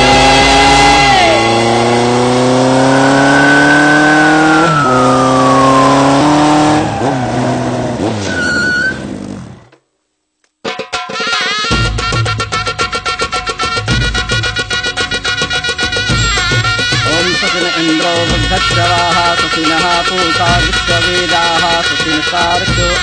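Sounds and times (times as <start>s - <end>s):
high tone sliding down: 0.0s - 9.1s
engine accelerating through gears: 0.0s - 9.7s.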